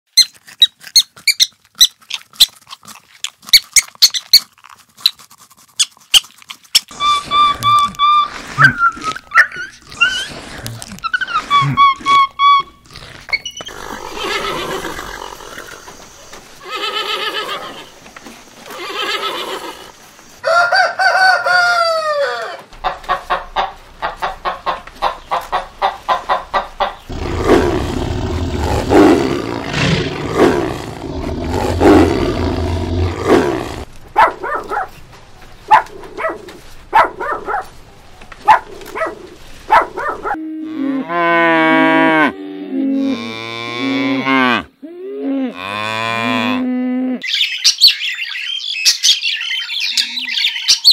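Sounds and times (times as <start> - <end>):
animal calls: 6.1 - 18.0, 26.8 - 34.9
cattle mooing: 27.1 - 33.9.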